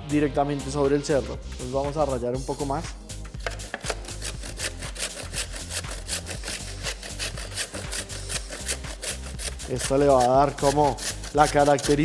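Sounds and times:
sugar block rasping on grater: 3.4s - 12.0s.

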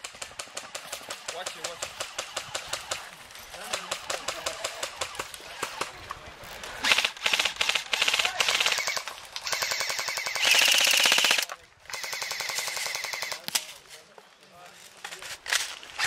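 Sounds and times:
airsoft rifles firing full-auto: 6.8s - 13.7s.

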